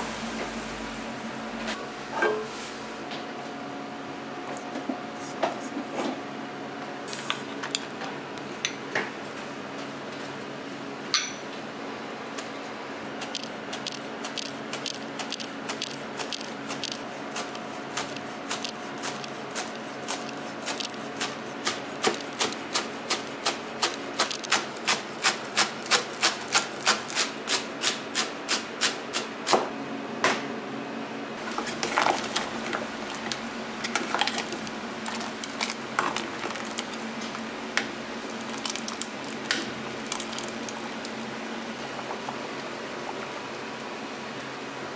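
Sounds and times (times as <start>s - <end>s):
broth boiling and bubbling: 13.2s - 27.5s, 31.4s - 44.9s.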